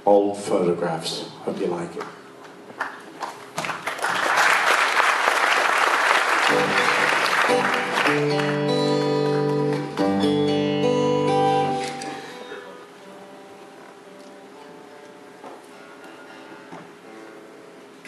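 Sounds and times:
audience applauding: 0:02.7 - 0:10.2
acoustic guitar chords: 0:06.4 - 0:18.0.

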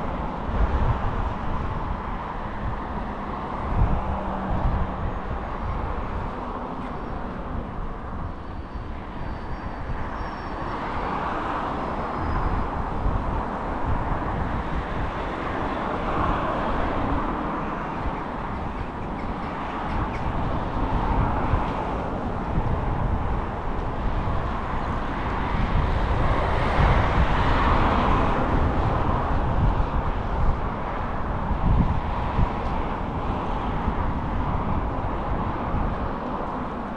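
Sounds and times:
traffic rumble: 0:00.0 - 0:36.9.

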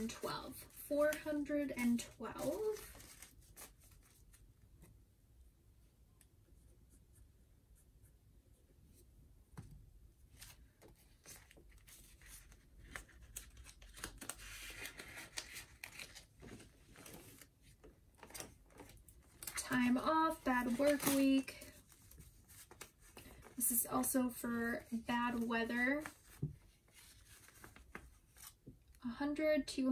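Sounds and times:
paper and plastic rustling: 0:00.0 - 0:04.4, 0:10.3 - 0:23.6, 0:24.7 - 0:28.6.

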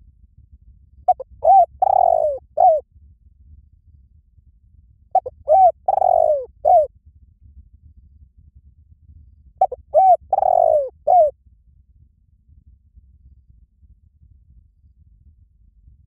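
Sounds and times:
dove cooing: 0:01.1 - 0:02.8, 0:05.2 - 0:06.9, 0:09.6 - 0:11.3.

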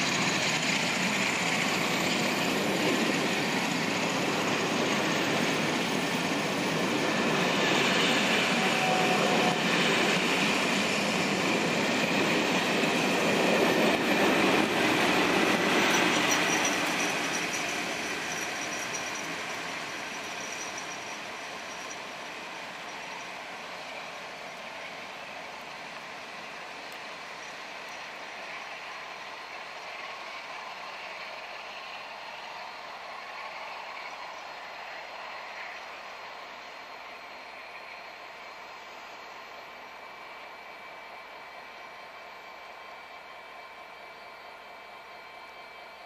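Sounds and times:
high wheel squeal: 0:00.0 - 0:25.2
train coaches rolling on rails: 0:00.0 - 0:46.0.

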